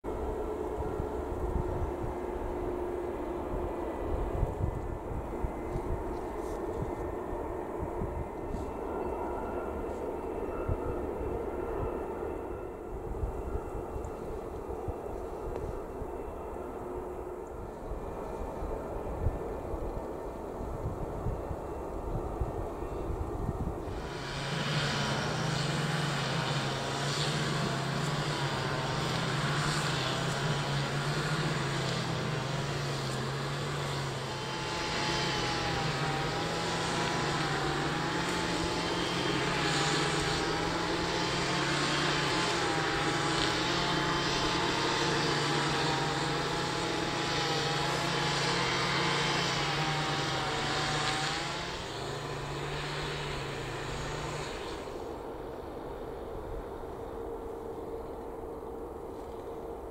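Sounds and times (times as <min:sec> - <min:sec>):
faint wavering whine: 0:00.0 - 0:59.9
jet engines low hum: 0:00.0 - 0:59.9.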